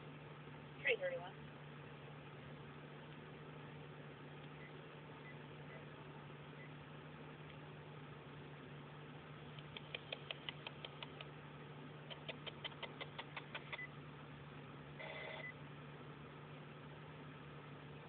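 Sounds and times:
low hum: 0.0s - 18.0s
sharp electronic clicks: 9.6s - 11.3s.

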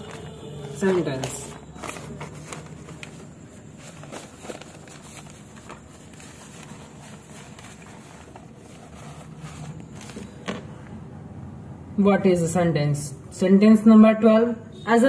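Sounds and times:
pages turning: 0.0s - 10.6s.

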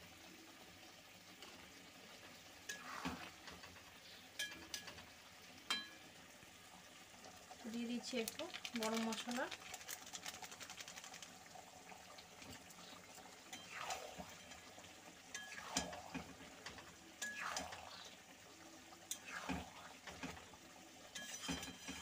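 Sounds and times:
spatula scraping a pan: 2.7s - 3.5s, 21.1s - 22.0s.

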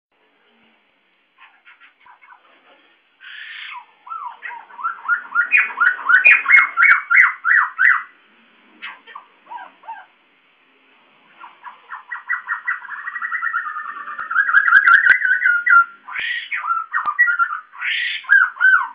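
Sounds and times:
bird calling with looping notes: 3.3s - 8.2s, 11.4s - 18.9s.

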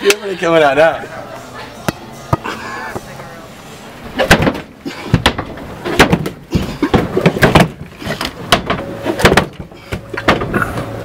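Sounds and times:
sharp knocks and thumps: 4.2s - 10.6s.

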